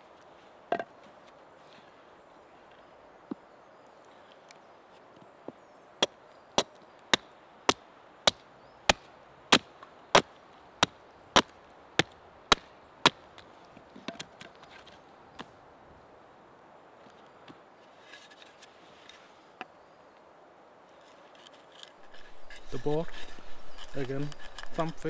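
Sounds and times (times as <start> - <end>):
hatchet chopping wood: 6.0 - 13.2.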